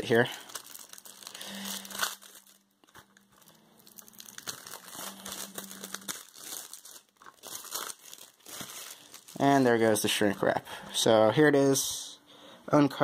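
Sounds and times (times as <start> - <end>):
plastic wrap crinkling: 0.0 - 10.3.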